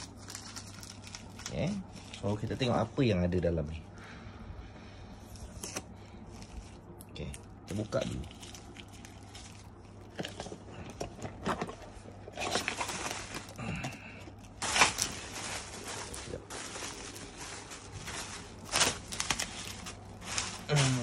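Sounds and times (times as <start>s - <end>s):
cardboard and packaging rustling: 0.0s - 3.4s, 5.3s - 21.0s.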